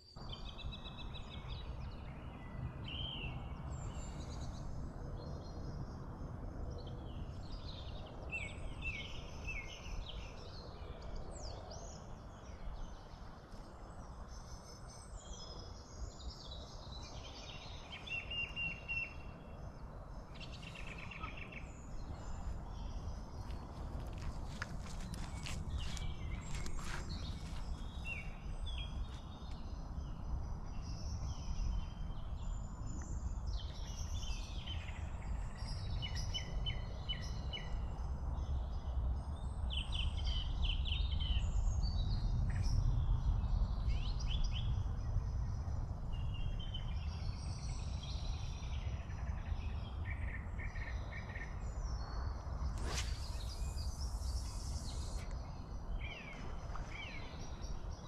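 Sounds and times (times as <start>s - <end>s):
small birds chirping: 6.8s - 37.7s, 46.2s - 58.0s
brief hiss: 52.8s - 55.2s.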